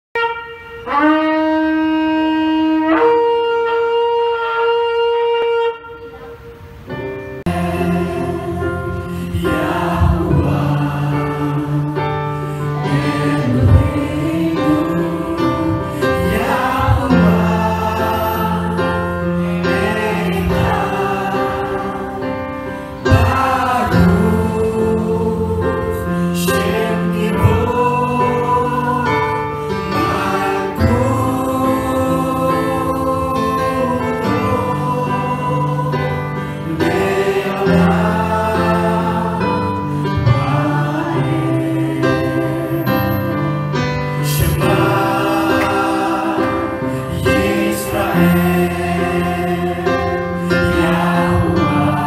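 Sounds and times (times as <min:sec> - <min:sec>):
shofar blast: 0:00.1 - 0:06.8, 0:12.4 - 0:22.0
worship song with band: 0:00.2 - 0:52.0.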